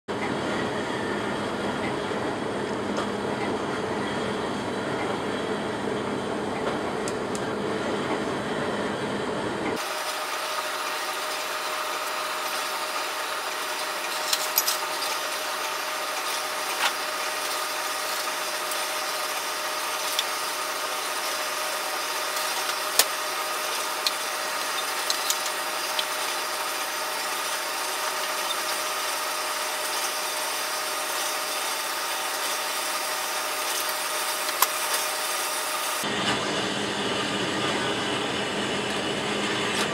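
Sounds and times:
gas burner blowing: 7.0 - 39.9
tongs clinking on metal: 14.0 - 15.2.

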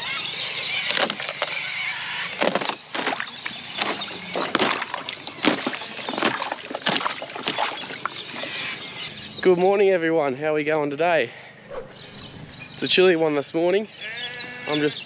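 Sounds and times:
ice cracking and snapping: 0.9 - 1.6, 2.3 - 8.5
ice plates knocking together: 2.4 - 8.0.

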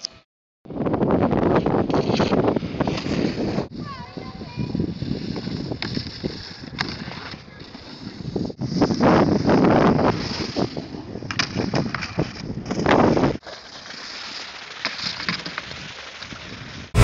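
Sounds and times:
wind buffeting microphone: 0.7 - 6.8.

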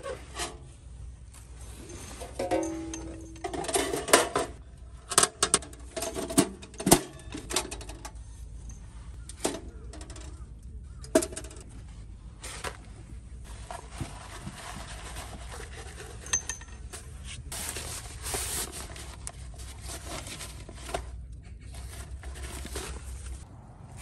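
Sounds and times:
metal stove parts clinking: 1.8 - 10.4, 15.9 - 17.4.

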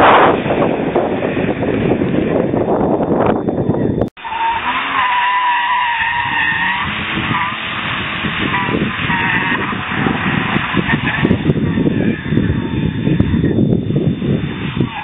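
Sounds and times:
wind rumble on microphone: 0.0 - 4.1, 6.0 - 15.0
tyres squealing: 3.8 - 13.6.

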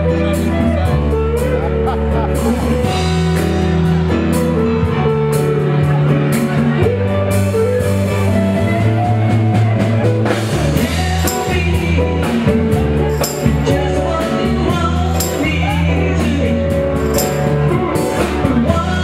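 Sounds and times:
bass line: 0.0 - 19.0
guitar: 0.0 - 19.0
person singing: 0.0 - 19.0
drums with cymbals: 0.4 - 19.0.

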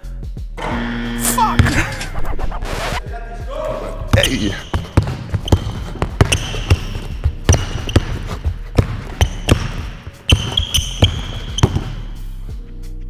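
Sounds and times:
basketball bouncing on wooden floor: 4.1 - 12.2
sneaker squeaks on floor: 4.1 - 12.4.

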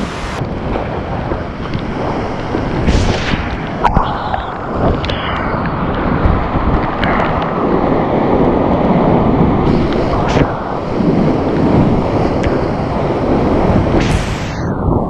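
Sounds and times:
water splashing over boat: 0.0 - 14.6
whitewater rapids rushing: 2.0 - 14.8.

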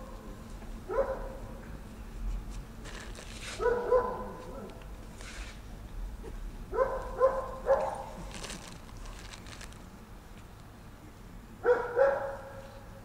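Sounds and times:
dog barking: 0.9 - 1.5, 3.6 - 4.8, 6.7 - 8.2, 11.6 - 12.7.

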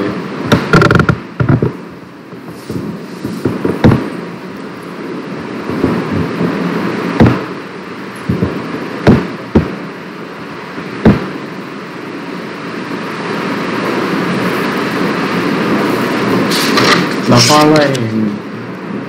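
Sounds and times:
microphone background hiss: 0.0 - 19.0
sharp knocks: 0.5 - 1.8, 2.4 - 4.2, 7.2 - 7.6, 8.3 - 9.8, 11.0 - 11.4.

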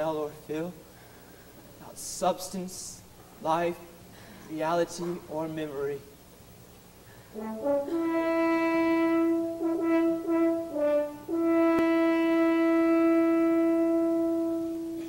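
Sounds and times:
french horn melody: 7.3 - 15.0.

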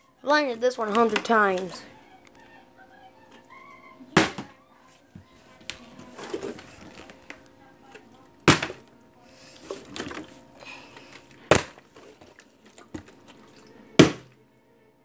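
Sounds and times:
water bottle landing thuds: 4.2 - 4.5, 8.4 - 8.8, 11.5 - 11.9, 14.0 - 14.4.

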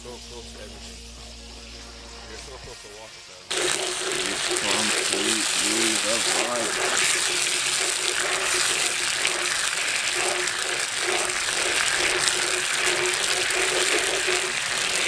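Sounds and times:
sauce bubbling and sizzling: 3.4 - 15.0
wooden spatula stirring: 3.5 - 15.0.

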